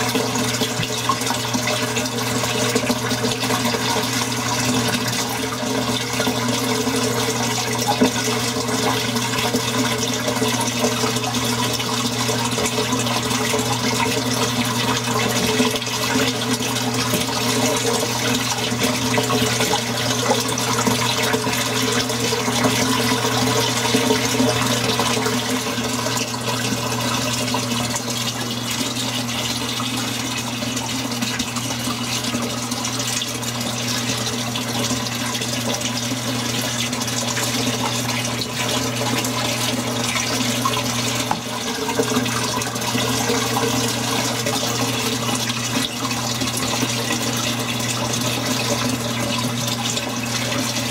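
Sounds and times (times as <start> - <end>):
pump humming: 0.0 - 50.9
water rushing and bubbling: 0.0 - 50.9.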